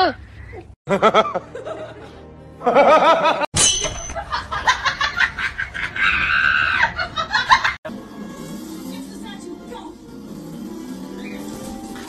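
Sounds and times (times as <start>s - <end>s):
laughter: 0.9s - 3.5s, 4.1s - 7.8s.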